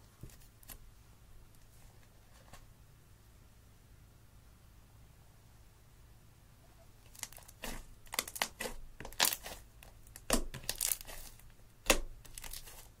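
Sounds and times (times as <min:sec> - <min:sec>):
slime crackling and popping: 0:07.0 - 0:12.8.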